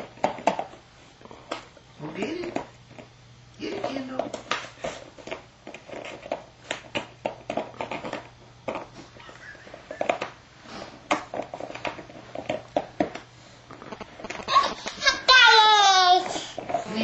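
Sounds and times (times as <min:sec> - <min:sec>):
dog chewing plastic bottle: 0:00.0 - 0:00.8, 0:04.1 - 0:14.8, 0:15.6 - 0:17.0.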